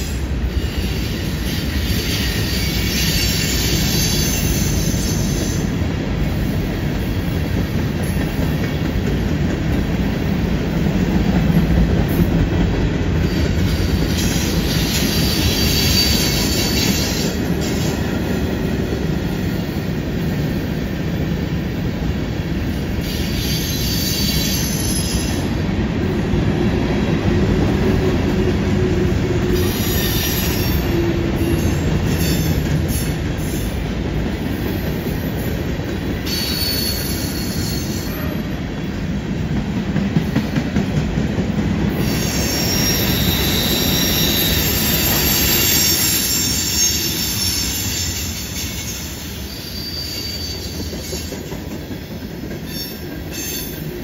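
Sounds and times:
rail joint clicks: 0.0s - 18.4s
steel wheels rumbling on rail: 0.0s - 54.0s
wheel flange squeal: 36.3s - 38.3s, 42.0s - 51.0s.

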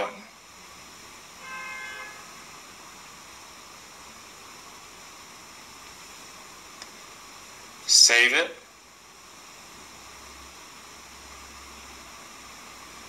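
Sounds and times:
faint background hiss: 0.0s - 13.0s
short pitched tone: 1.4s - 2.3s.

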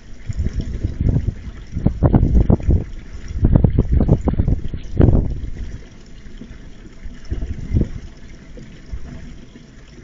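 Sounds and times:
wind buffeting microphone: 0.0s - 5.9s, 7.2s - 8.2s.

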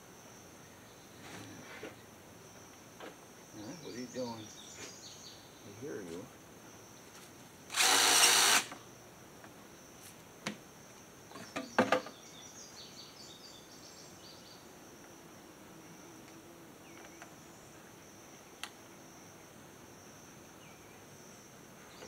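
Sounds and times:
high insect drone: 0.0s - 22.0s
cordless drill driving a screw: 7.7s - 8.8s.

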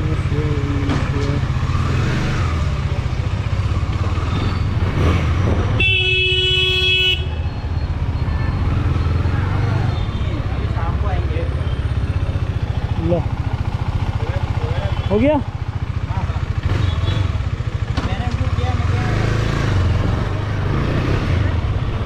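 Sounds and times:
vehicle horn honking: 5.8s - 7.5s.

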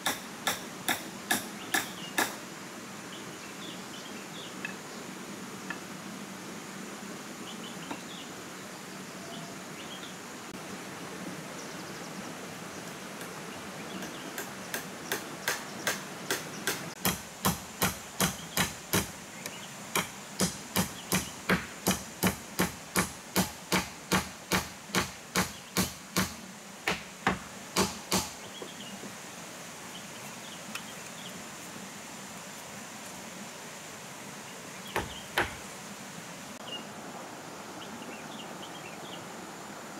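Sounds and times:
hammer blows on bamboo frame: 0.0s - 2.4s, 14.0s - 29.2s, 34.9s - 35.7s.

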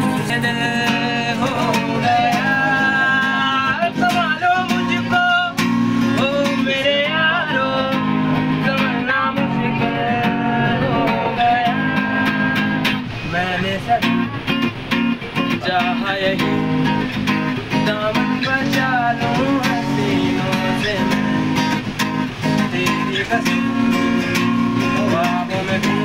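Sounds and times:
man singing: 0.0s - 14.6s, 15.4s - 16.9s, 17.6s - 21.7s, 22.4s - 26.0s
acoustic guitar strumming: 0.0s - 26.0s.

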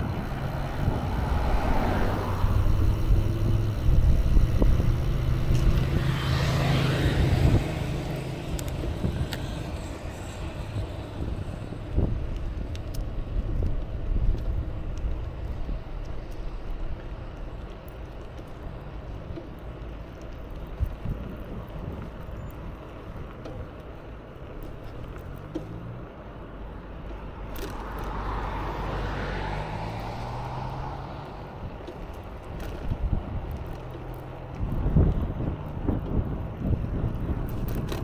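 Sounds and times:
low engine drone: 0.0s - 20.7s
cars passing on road: 0.0s - 38.0s.

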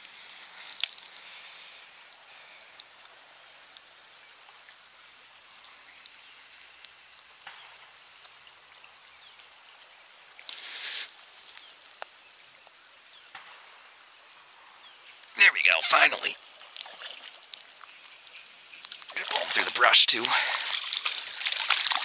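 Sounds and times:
flowing water: 15.5s - 22.0s
light ticks: 16.6s - 19.1s.

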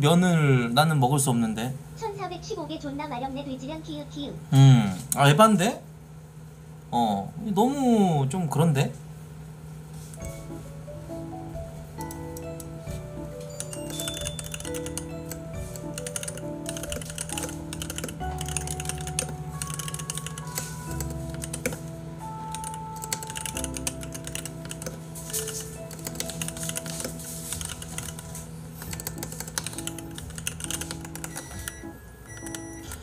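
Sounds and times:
soft background music: 10.0s - 33.0s
computer keyboard typing: 12.0s - 12.7s, 13.4s - 33.0s.

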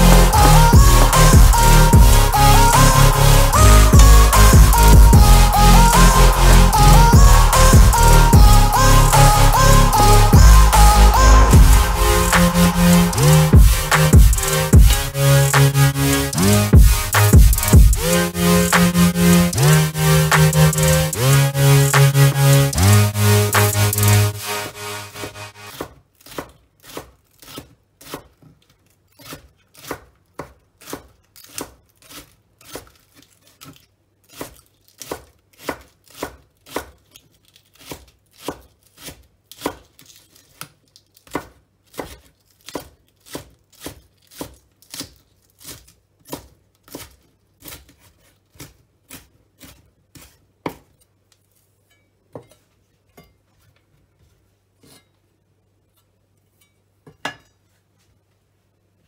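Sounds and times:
knife chopping on wooden board: 25.7s - 28.4s, 34.3s - 37.0s, 37.8s - 39.8s, 41.2s - 48.0s.

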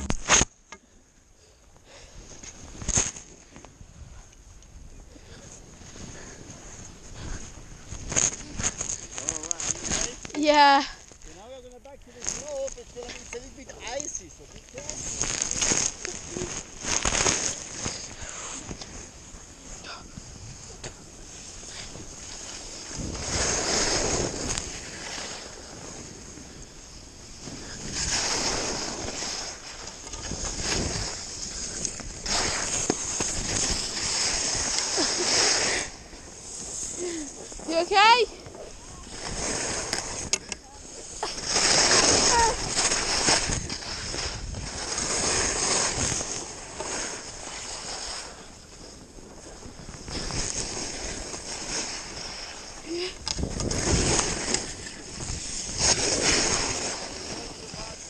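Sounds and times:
skis scraping on icy snow: 5.2s - 58.0s
wind rushing over microphone: 12.2s - 58.0s.

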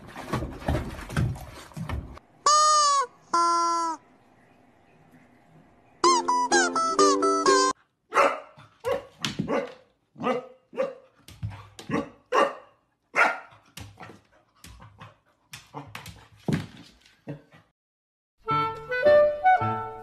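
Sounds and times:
puppy barking: 8.1s - 11.0s, 11.9s - 13.5s.

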